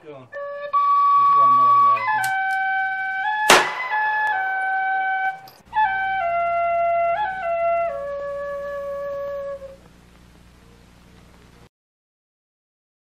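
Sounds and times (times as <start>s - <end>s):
held-note melody: 0.0s - 9.8s
sharp crash: 3.5s - 4.4s.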